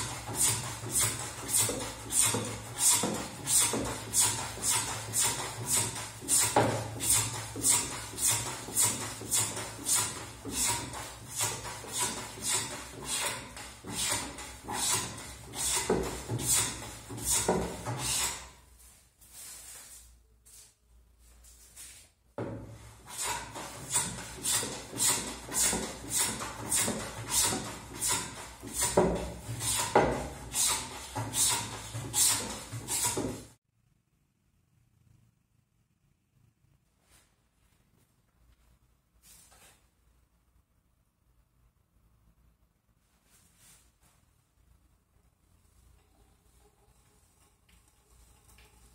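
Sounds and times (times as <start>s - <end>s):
hand plane cutting wood: 0.0s - 18.6s, 23.0s - 33.6s.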